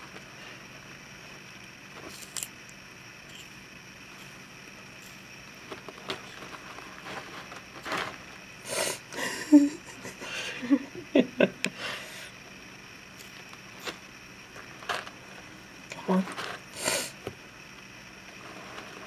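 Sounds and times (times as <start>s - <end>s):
tortoise crunching carrot: 2.0s - 3.6s.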